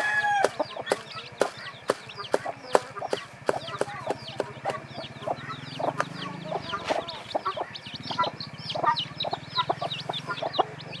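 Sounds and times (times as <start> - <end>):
chicks peeping: 0.0 - 11.0
hen clucking: 0.0 - 11.0.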